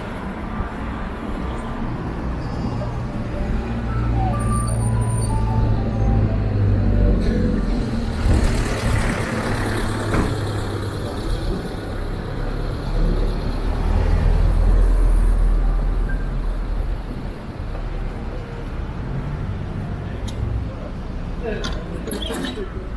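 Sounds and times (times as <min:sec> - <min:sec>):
street noise: 0:00.0 - 0:22.9
vehicle engine rumble: 0:00.0 - 0:22.9.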